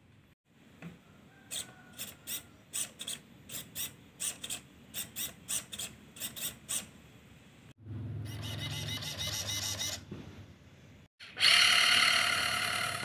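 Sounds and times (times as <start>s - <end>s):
small electric motor whirring: 1.5s - 6.9s, 11.3s - 13.0s.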